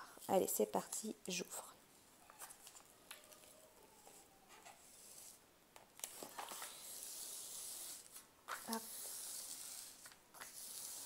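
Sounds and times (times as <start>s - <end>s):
plastic film and paper rustling: 2.2s - 5.4s, 6.0s - 11.0s.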